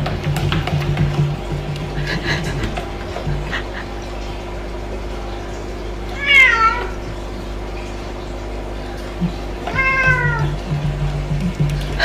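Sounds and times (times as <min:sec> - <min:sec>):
cat meowing: 0:06.2 - 0:07.0, 0:09.7 - 0:10.5.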